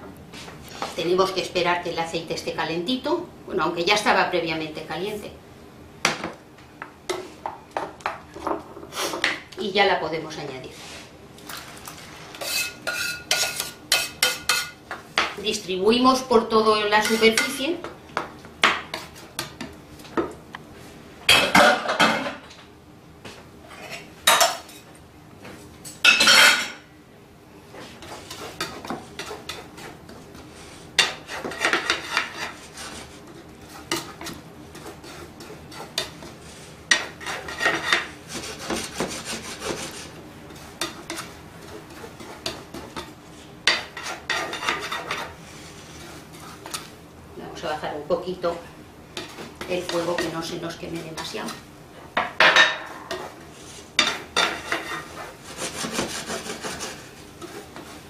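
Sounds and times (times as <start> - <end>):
spatula scraping a frying pan: 12.0 - 14.8, 27.7 - 46.9, 52.6 - 58.0.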